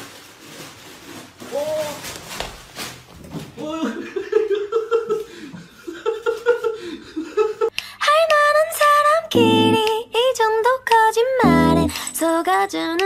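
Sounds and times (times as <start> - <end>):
laughter: 3.8 - 7.7
song with high sung notes: 9.3 - 9.9, 11.4 - 12.2.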